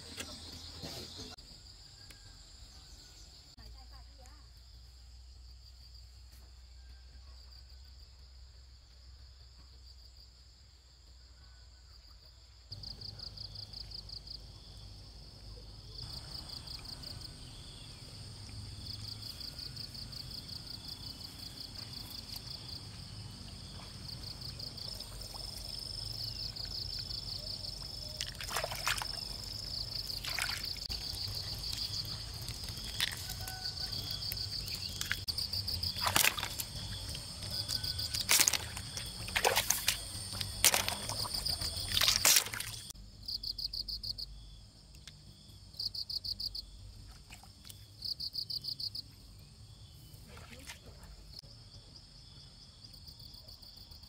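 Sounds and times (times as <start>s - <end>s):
insects trilling: 15.8s - 54.0s
splashes of shallow water: 27.9s - 33.6s, 35.0s - 42.9s, 47.0s - 47.8s, 50.2s - 51.3s.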